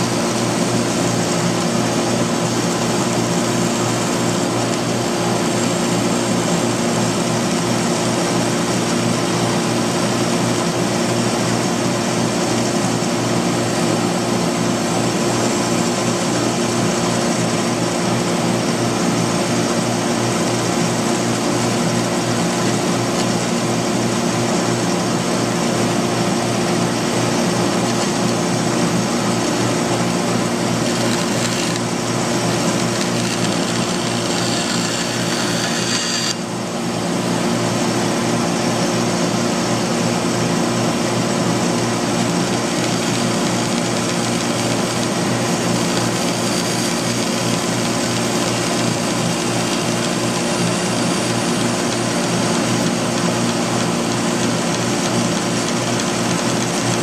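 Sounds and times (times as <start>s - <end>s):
dust collector drone: 0.0s - 57.0s
band saw cutting wood: 27.3s - 37.6s, 41.6s - 57.0s.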